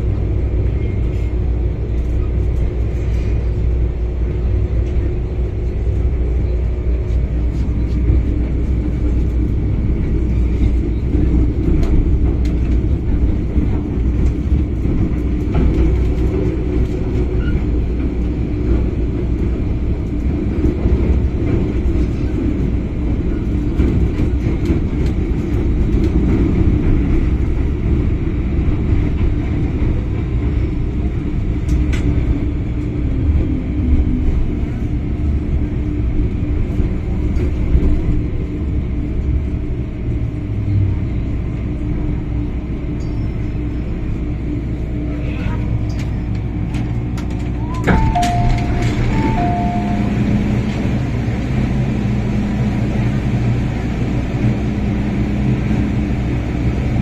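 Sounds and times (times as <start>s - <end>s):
train wheels rumbling on rail: 0.0s - 57.0s
faint high tone: 47.9s - 50.2s.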